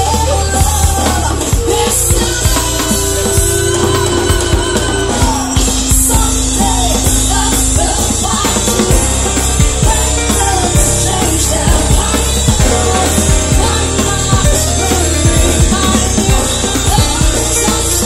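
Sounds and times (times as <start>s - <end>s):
bass guitar: 0.0s - 18.0s
drum beat: 0.0s - 18.0s
electric guitar: 0.0s - 18.0s
keyboard: 0.0s - 18.0s
woman singing into microphone: 0.0s - 18.0s.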